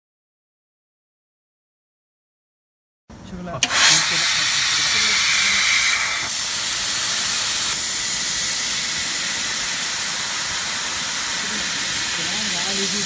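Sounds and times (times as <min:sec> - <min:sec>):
gas jet hissing: 0:03.6 - 0:13.0.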